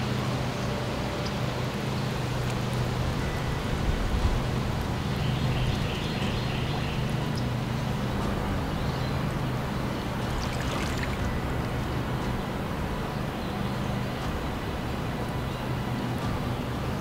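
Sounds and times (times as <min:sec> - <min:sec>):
water sloshing around wading legs: 0:09.2 - 0:12.6.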